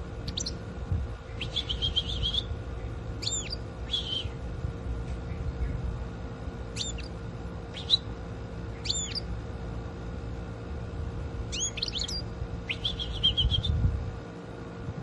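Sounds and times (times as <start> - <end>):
low hum and rumble: 0.0 - 15.0
bird chirping and twittering: 0.2 - 0.6, 1.3 - 4.4, 5.1 - 5.9, 6.7 - 8.1, 8.7 - 9.3, 11.5 - 13.8.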